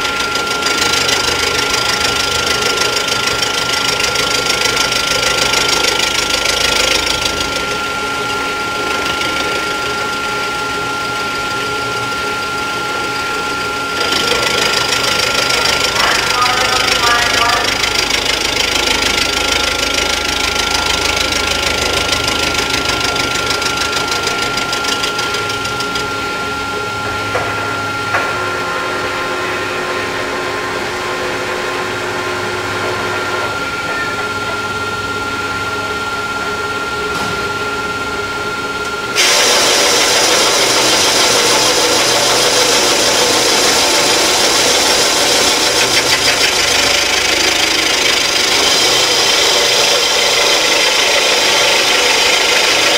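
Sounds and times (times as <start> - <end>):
scraping metal cutting noise: 0.0 - 28.3, 39.1 - 52.9
milling machine whine: 0.0 - 52.9.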